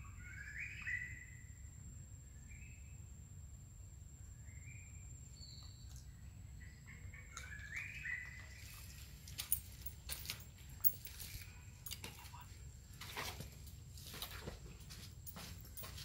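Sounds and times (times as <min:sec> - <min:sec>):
birds chirping: 0:04.4 - 0:16.0.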